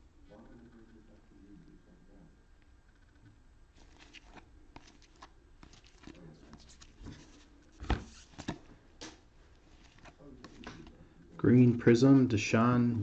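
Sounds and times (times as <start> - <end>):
trading cards clicking and sliding: 3.8 - 11.0.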